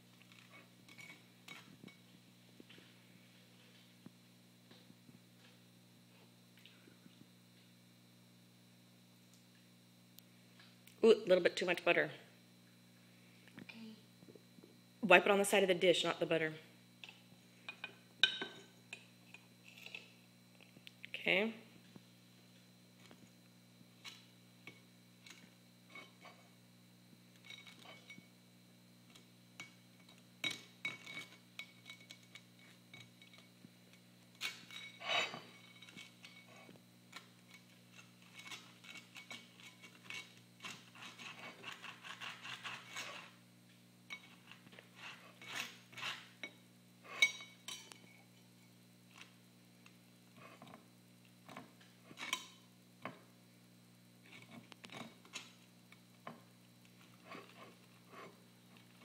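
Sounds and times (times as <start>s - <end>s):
knife scraping butter on bread: 37.9s - 43.4s, 44.3s - 46.4s.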